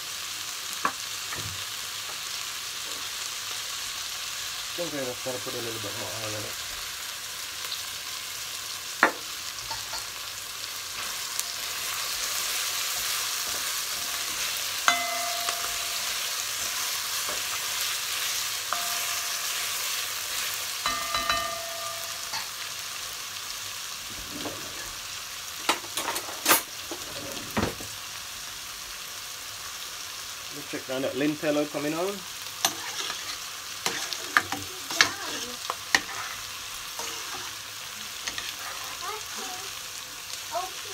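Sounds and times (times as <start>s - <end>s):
vegetables sizzling in hot oil: 0.0s - 40.9s
spoon scraping and knocking pot: 32.7s - 36.4s, 37.0s - 37.5s.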